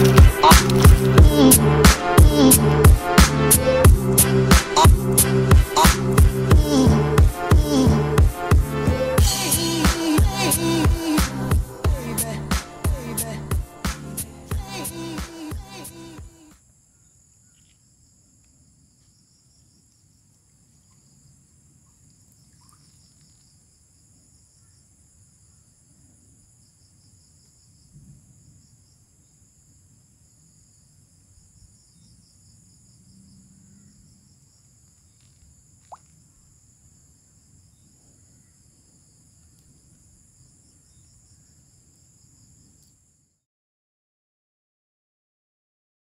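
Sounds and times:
insect chirping trills: 16.4 - 43.4.

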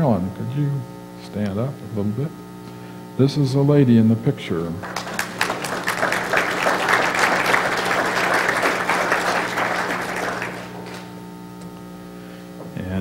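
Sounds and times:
audience applauding: 4.8 - 11.2.

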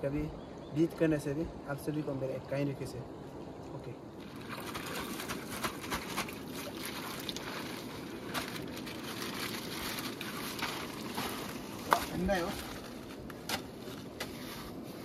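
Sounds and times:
plastic bags crinkling: 4.4 - 14.1.

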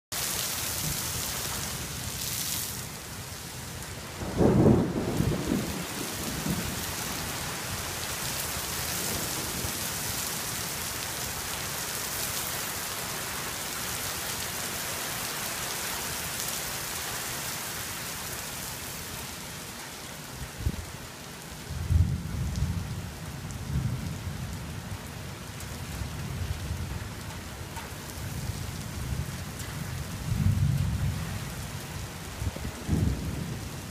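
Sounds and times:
rain on pavement and foliage: 0.1 - 33.9
low thunder rumbling: 4.1 - 7.6, 21.7 - 24.5, 28.4 - 31.5, 32.3 - 33.9
loud thunderclap: 4.2 - 6.9, 32.6 - 33.9.

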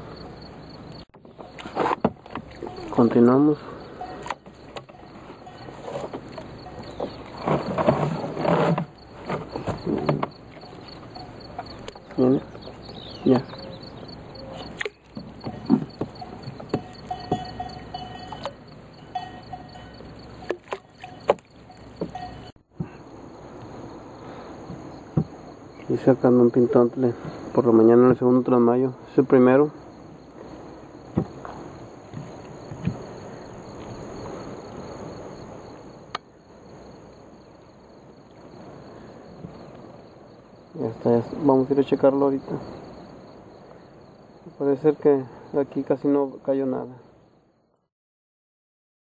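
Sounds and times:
high insect buzz: 0.0 - 27.6
steady-pitched chirping: 0.0 - 28.0
net hauled into boat knocking: 20.4 - 22.4.

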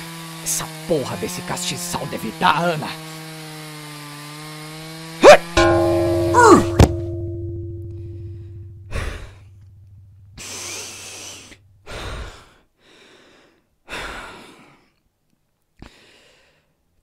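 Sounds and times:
low humming tone: 5.6 - 11.8.

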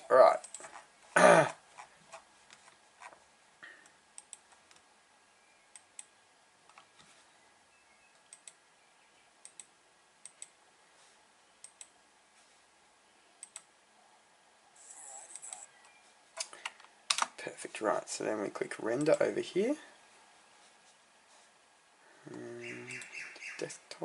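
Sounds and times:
computer mouse clicks: 4.2 - 4.8, 8.2 - 8.6, 9.4 - 10.6, 11.6 - 11.9, 13.4 - 13.7, 15.0 - 15.7.

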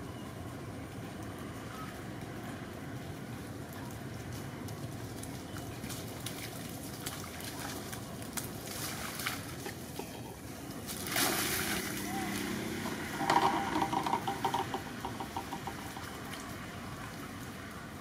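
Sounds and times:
monkeys splashing in puddle: 5.2 - 18.0.

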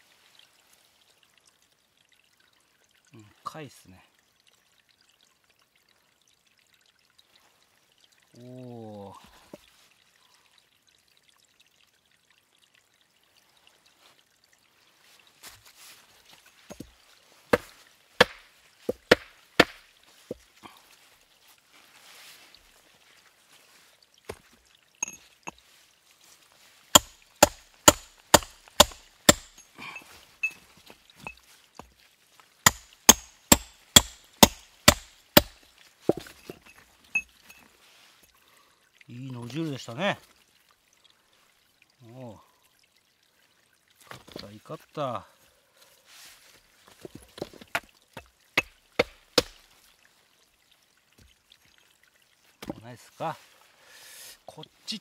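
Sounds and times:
hammer striking stone: 17.5 - 19.8, 26.9 - 29.6, 32.6 - 36.3, 48.6 - 49.6.

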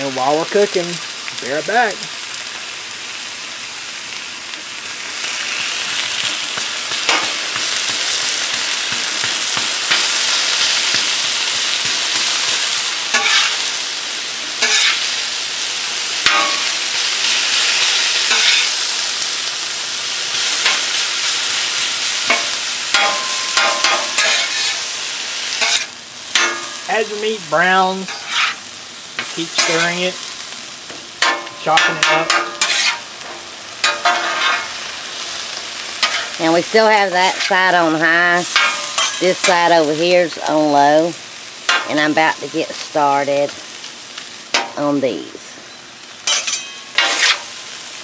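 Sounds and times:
meat sizzling on a griddle: 0.0 - 48.0
metal spatula scraping and tapping: 13.1 - 13.5, 14.6 - 15.0, 18.3 - 18.7, 22.3 - 24.7, 25.6 - 26.7, 31.2 - 33.0, 33.8 - 34.7, 46.3 - 47.4.

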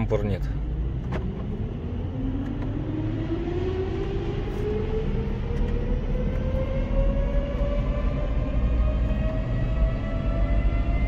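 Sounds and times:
car engine revving at full throttle: 0.6 - 11.0.

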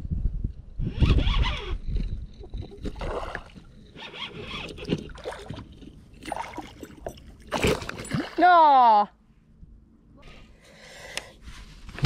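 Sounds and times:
wind rumble on microphone: 0.0 - 3.9.

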